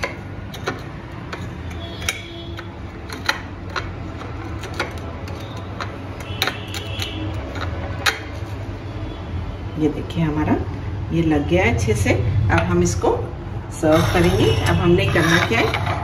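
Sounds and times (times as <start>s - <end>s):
glass grating against bowl: 13.8s - 16.0s.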